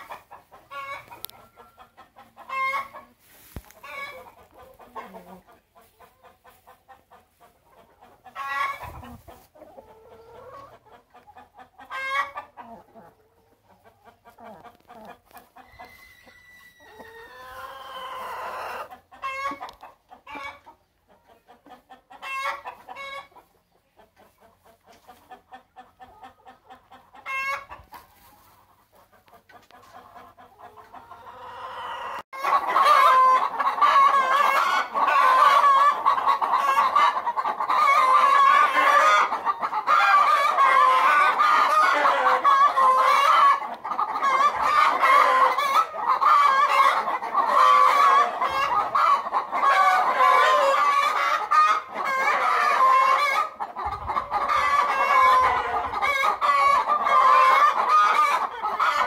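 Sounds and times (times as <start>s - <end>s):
chickens clucking: 0.0s - 59.0s
rooster crowing: 15.8s - 18.0s.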